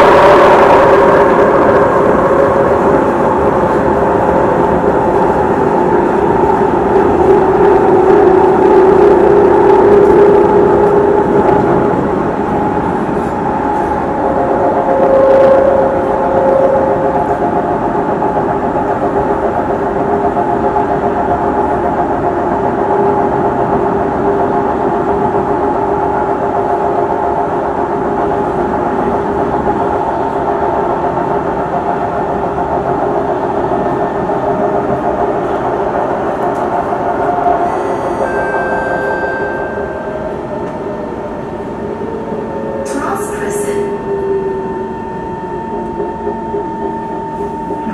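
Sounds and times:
wheels rumbling on rail: 0:00.0 - 0:47.9
train motor whine: 0:36.2 - 0:47.9.

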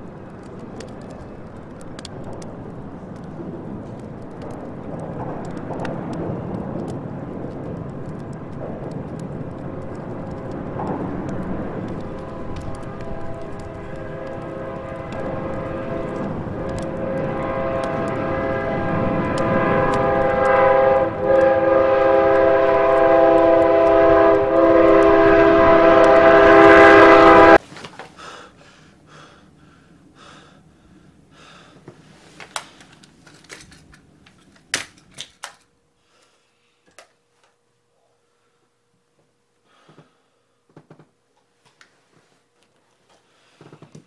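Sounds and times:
faint clicks and crackles: 0:00.0 - 0:26.2
train rumbling: 0:00.0 - 0:28.3
train horn blaring: 0:09.5 - 0:27.6.

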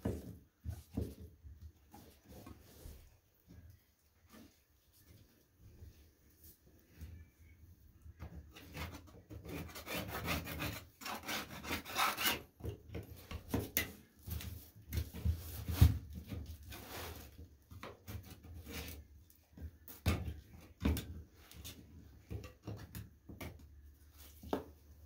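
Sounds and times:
hand scraper scraping floor: 0:08.6 - 0:12.6, 0:13.6 - 0:19.1.

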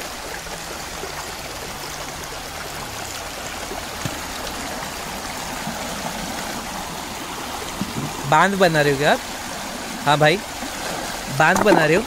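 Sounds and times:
stream water rushing over stones: 0:00.0 - 0:12.0.

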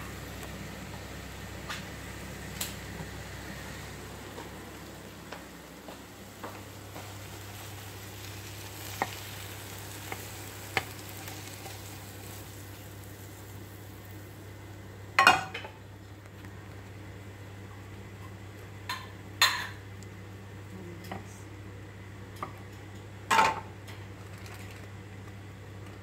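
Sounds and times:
pan and utensil clattering: 0:15.2 - 0:15.8.

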